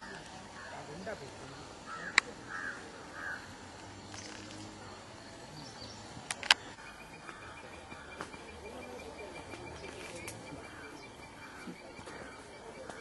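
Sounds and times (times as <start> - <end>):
faint bird chirps: 0.0 - 13.0
insect sounds: 0.0 - 13.0
sharp clicks: 6.2 - 7.5.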